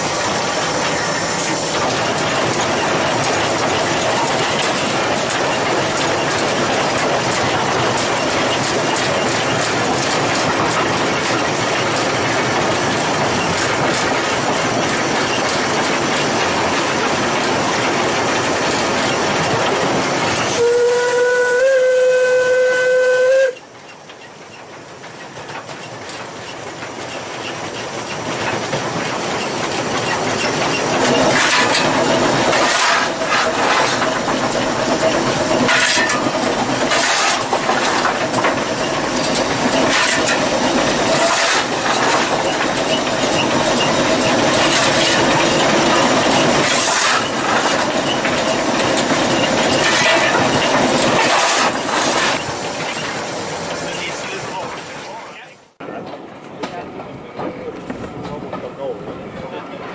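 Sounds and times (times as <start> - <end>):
steam exhaust rushing: 0.0 - 23.9, 24.8 - 55.6
train wheel noise: 0.0 - 59.9
steam whistle: 20.5 - 23.6.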